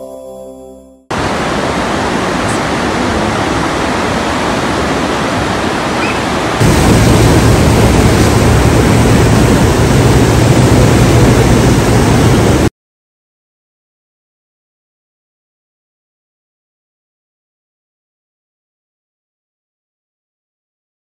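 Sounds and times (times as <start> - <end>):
floodwater rushing: 1.1 - 12.7.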